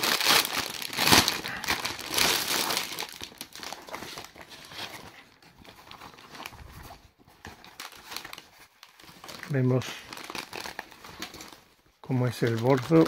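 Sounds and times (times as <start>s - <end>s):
plastic bag crinkling: 0.0s - 13.0s
quiet handling of pouch: 4.8s - 7.6s.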